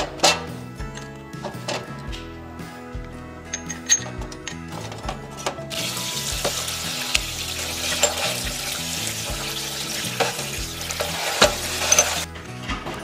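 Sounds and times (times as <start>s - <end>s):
metal parts clinking: 0.0s - 2.3s, 3.5s - 5.8s, 6.4s - 8.5s, 10.1s - 12.3s
water spraying into metal tray: 5.7s - 12.3s.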